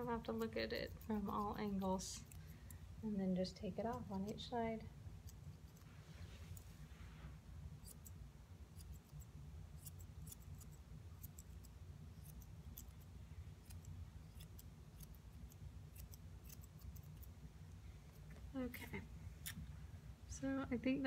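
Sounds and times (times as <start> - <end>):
grooming shears snipping hair: 0.0 - 2.8, 3.4 - 4.5, 7.8 - 17.4.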